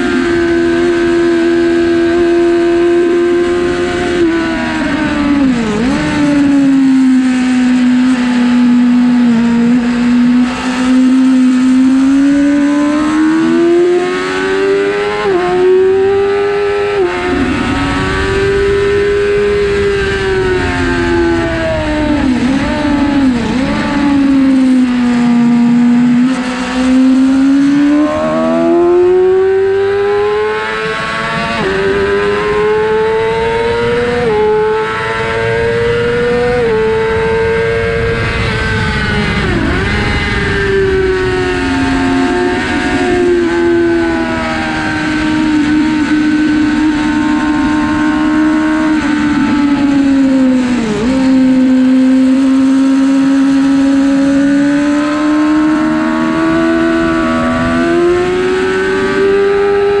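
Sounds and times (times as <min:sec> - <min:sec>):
motorcycle engine revving: 0:00.0 - 1:00.0
wind rushing: 0:16.2 - 0:25.8, 0:35.2 - 0:47.5.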